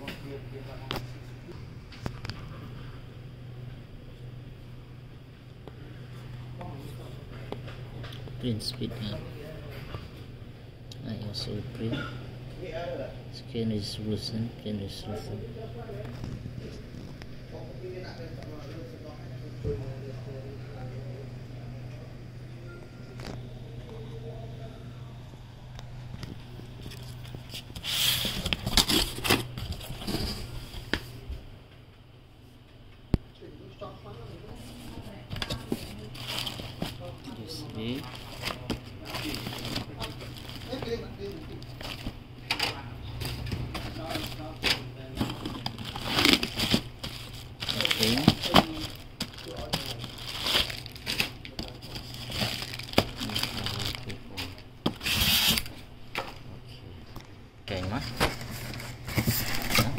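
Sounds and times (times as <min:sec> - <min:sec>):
steady low hum: 0:00.0 - 0:59.9
plastic packaging crumpling: 0:35.4 - 0:42.2, 0:43.8 - 0:55.7.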